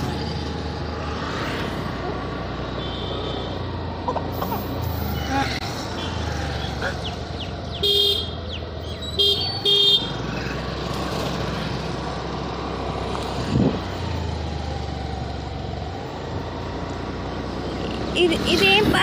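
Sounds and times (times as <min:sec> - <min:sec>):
road noise: 0:00.0 - 0:19.0.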